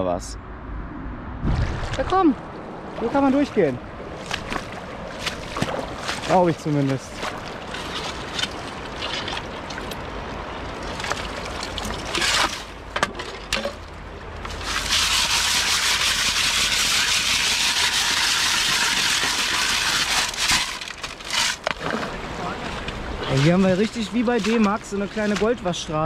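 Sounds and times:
water pouring through sieve: 0:10.9 - 0:12.7, 0:14.5 - 0:22.0, 0:23.2 - 0:25.8
gravel scraping: 0:14.5 - 0:26.0.

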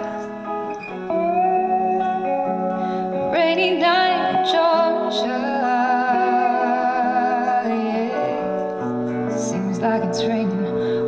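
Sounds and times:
band playing soul ballad: 0:00.0 - 0:11.0
hummed vocal with vibrato: 0:03.3 - 0:11.0.

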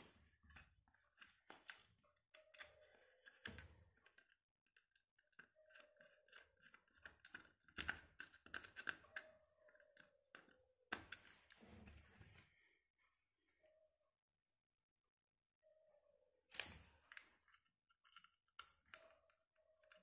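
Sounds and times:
plastic bulb holder clicks and scrapes: 0:00.6 - 0:09.3.

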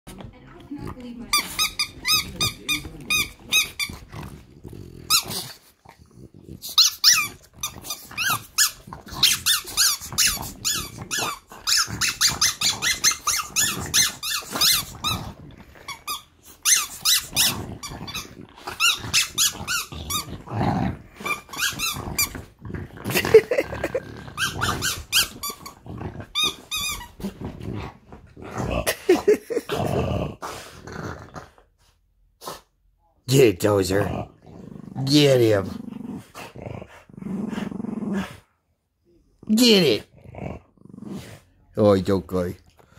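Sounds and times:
dogs growling: 0:00.1 - 0:32.7, 0:33.6 - 0:38.6, 0:39.3 - 0:41.6
dogs squeaking and yipping: 0:06.7 - 0:15.3, 0:15.9 - 0:20.3, 0:21.2 - 0:22.4, 0:24.4 - 0:27.2.

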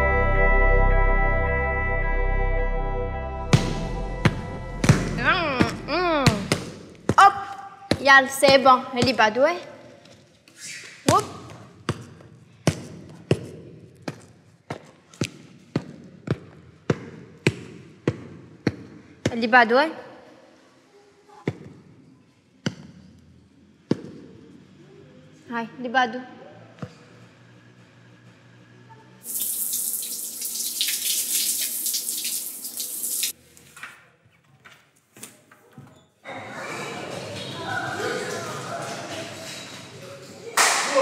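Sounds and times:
water running hard: 0:29.2 - 0:33.4.

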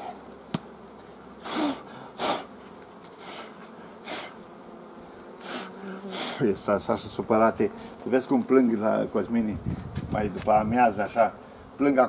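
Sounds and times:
honeybees humming: 0:00.0 - 0:12.0
breathy puffs of air: 0:01.4 - 0:02.5, 0:03.2 - 0:04.4, 0:05.4 - 0:06.5, 0:07.7 - 0:08.0.

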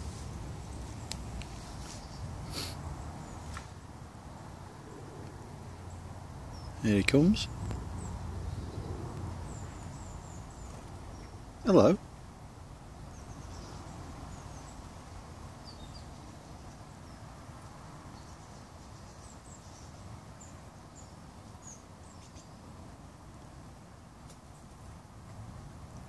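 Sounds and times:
faint bird chirps: 0:18.1 - 0:22.7.

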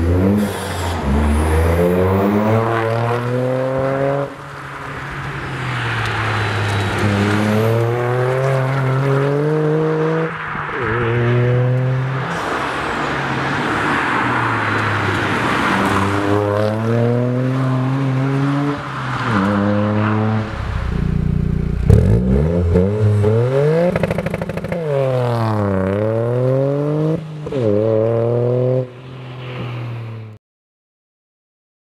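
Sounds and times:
car engine revving: 0:06.1 - 0:12.5, 0:14.8 - 0:28.9.

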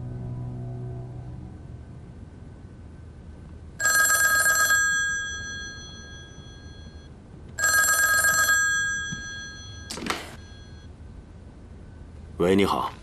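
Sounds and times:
telephone bell ringing: 0:03.8 - 0:10.9.

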